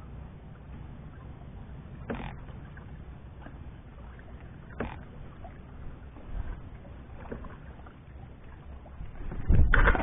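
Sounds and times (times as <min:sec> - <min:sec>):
low rumble: 0:00.0 - 0:10.0
water lapping against hull: 0:00.0 - 0:10.0
paddle knocks: 0:02.0 - 0:03.6, 0:04.2 - 0:10.0.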